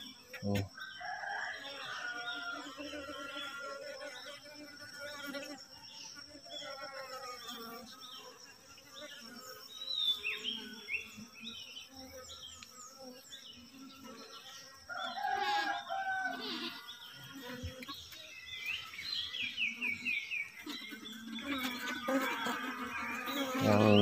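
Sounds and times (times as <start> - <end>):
honeybees humming: 0.0 - 24.0
small birds chirping: 2.0 - 24.0
loud bird call: 20.6 - 24.0.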